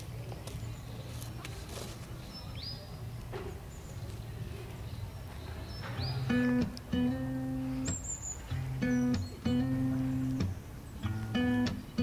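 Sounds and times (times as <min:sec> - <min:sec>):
bird whistling: 0:05.8 - 0:12.0.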